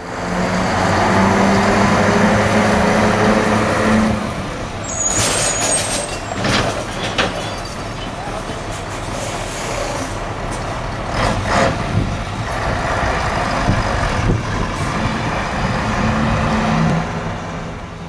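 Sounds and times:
truck diesel engine running: 0:07.9 - 0:18.0.

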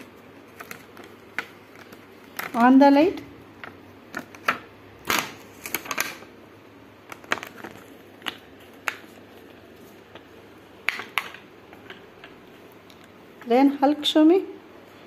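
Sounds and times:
plastic packaging crinkling: 0:00.0 - 0:03.0, 0:03.6 - 0:06.3, 0:07.0 - 0:12.0.

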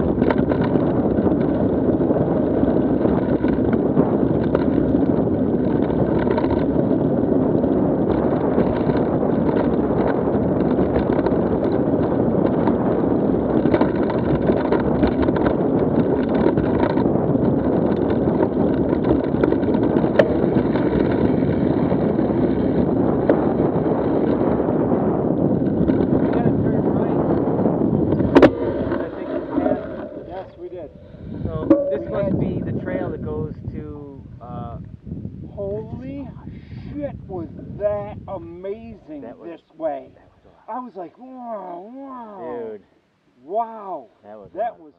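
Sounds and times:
bike tyres rumbling over gravel: 0:00.0 - 0:34.2
wind rushing over microphone: 0:00.0 - 0:41.1.

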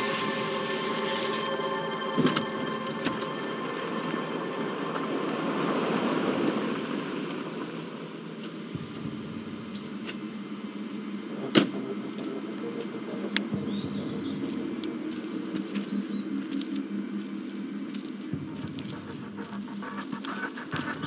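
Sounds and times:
car engine humming: 0:00.0 - 0:15.7.

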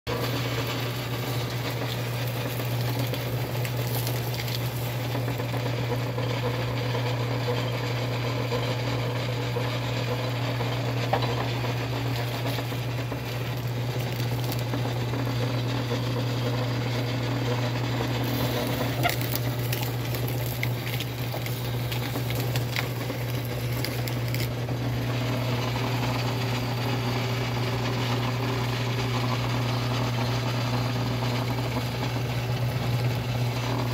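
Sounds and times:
cane stalks cracking: 0:00.1 - 0:05.7, 0:11.8 - 0:15.2, 0:18.2 - 0:24.6
motor hum: 0:00.1 - 0:33.9
gears and chain rattling: 0:00.2 - 0:05.6, 0:18.2 - 0:24.6.

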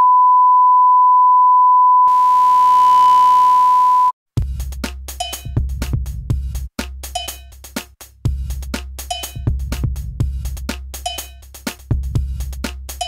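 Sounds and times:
electronic music with drum machine: 0:04.4 - 0:13.0.

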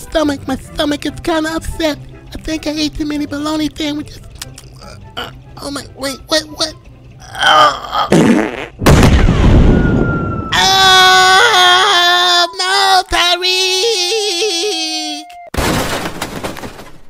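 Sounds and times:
cartoon fart blast: 0:08.0 - 0:09.2
cartoon wail: 0:09.6 - 0:15.4.

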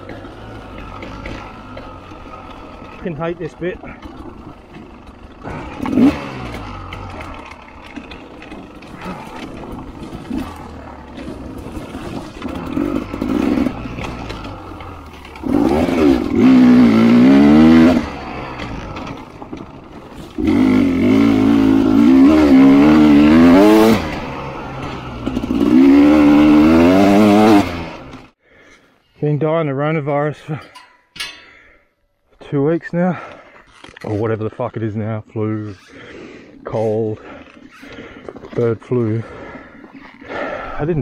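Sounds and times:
clatter: 0:00.0 - 0:23.3
two-stroke dirt bike engine revving: 0:00.0 - 0:28.4.

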